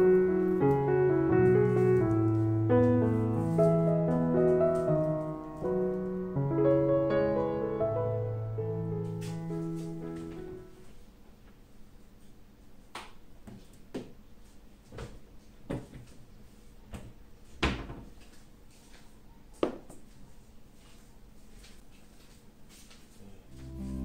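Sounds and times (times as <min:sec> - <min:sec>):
piano music: 0:00.0 - 0:10.9, 0:23.5 - 0:24.0.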